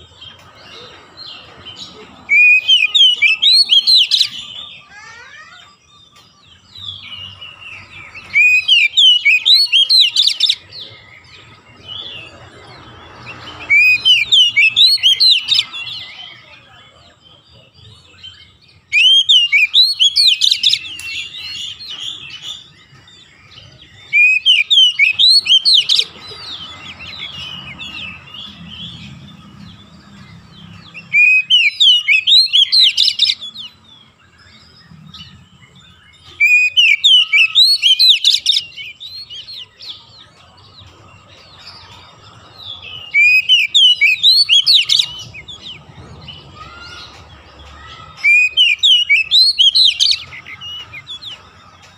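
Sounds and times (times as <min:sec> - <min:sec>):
bird twittering: 0:00.0 - 0:16.4, 0:18.3 - 0:40.0, 0:41.6 - 0:51.9
bird whistling rising phrases: 0:31.0 - 0:33.4.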